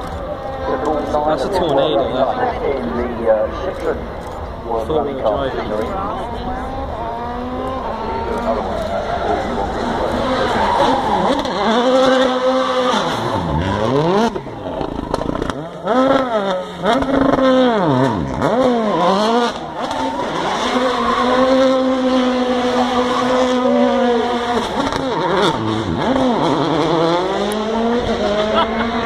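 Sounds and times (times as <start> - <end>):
rally car engine revving hard: 6.2 - 29.0.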